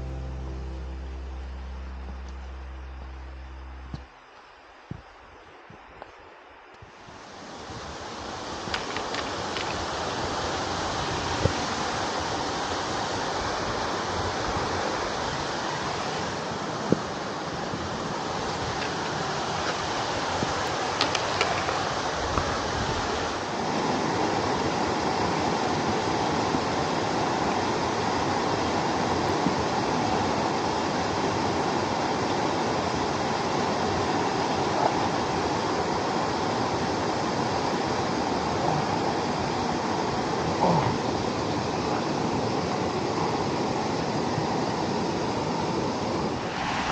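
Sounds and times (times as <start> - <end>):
stream rushing over rocks: 0.0 - 46.9.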